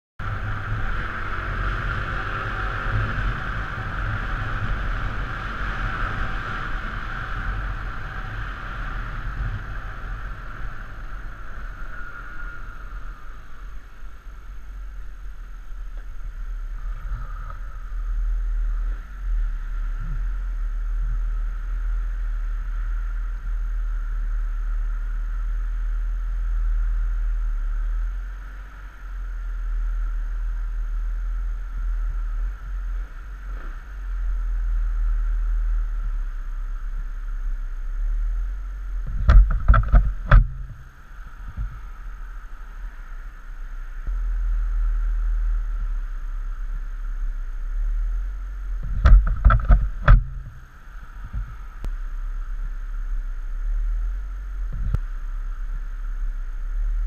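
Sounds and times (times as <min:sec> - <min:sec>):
sharp knocks near microphone: 0:39.0 - 0:40.8, 0:48.8 - 0:50.6.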